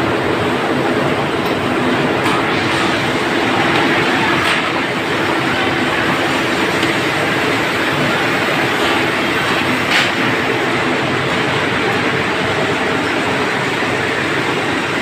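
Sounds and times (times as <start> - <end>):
roller conveyor machine running: 0.0 - 15.0.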